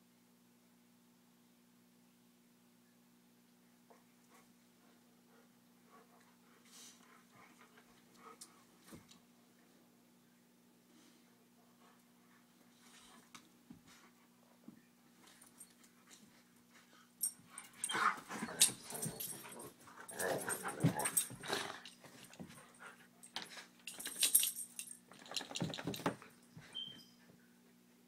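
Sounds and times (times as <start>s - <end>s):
dogs making play noises: 11.6s - 27.9s.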